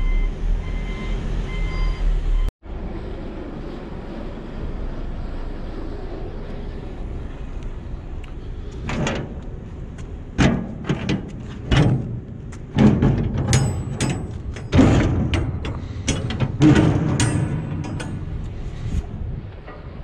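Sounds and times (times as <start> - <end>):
metal clanks and rattles: 8.7 - 20.0.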